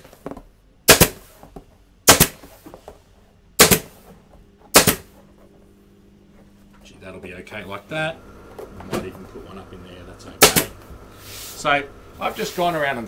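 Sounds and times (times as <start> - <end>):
pneumatic staple gun firing: 2.1 - 2.4, 3.6 - 3.9, 4.7 - 5.1, 10.4 - 10.8.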